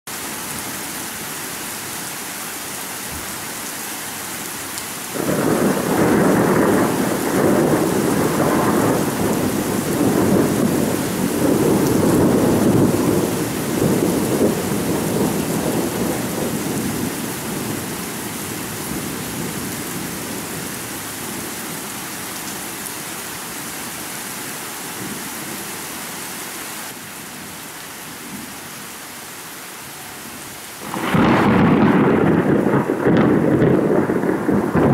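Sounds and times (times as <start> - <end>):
rain hissing: 0.1 - 34.9
thunder rumbling: 5.1 - 20.7, 30.8 - 34.9.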